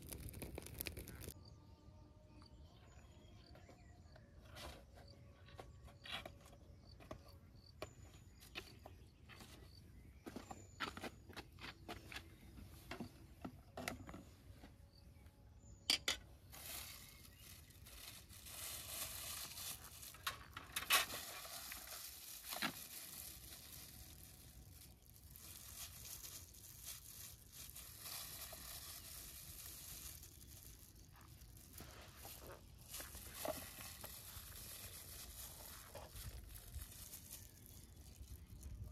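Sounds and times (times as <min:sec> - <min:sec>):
gloved hands mixing food: 0:21.3 - 0:38.9.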